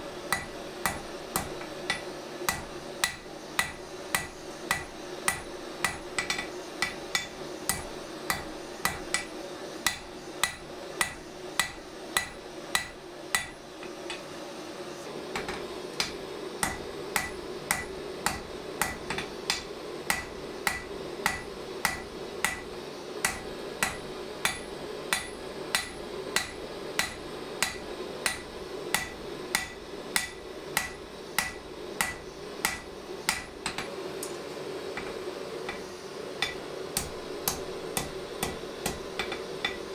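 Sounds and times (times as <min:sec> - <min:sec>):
hammer striking steel on anvil: 0:00.3 - 0:14.3, 0:15.4 - 0:33.9, 0:35.0 - 0:39.9.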